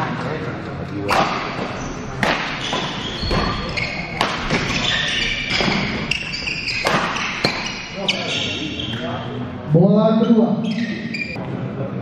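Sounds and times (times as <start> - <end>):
rackets hitting shuttlecock: 1.0 - 8.2
shoes squeaking on court: 1.1 - 9.4, 10.2 - 11.4.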